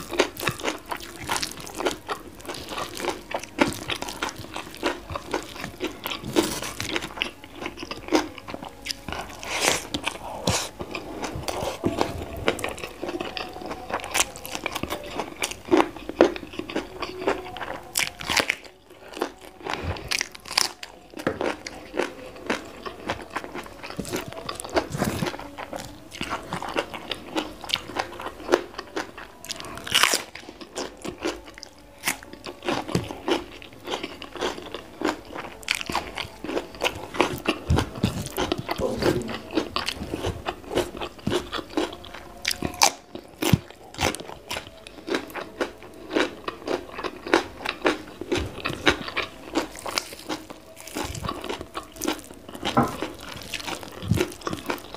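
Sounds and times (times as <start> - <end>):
crunching and chewing vegetables: 0.0 - 54.9.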